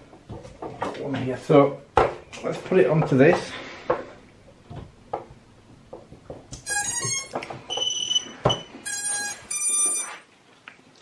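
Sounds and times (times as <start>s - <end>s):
drone motor start-up beeps: 6.7s - 10.2s.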